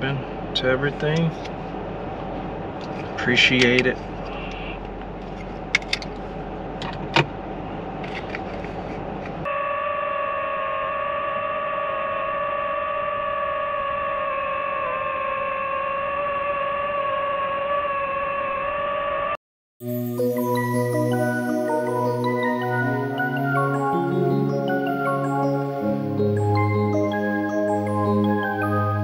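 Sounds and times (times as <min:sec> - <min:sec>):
held synth chord: 0:19.8 - 0:29.0.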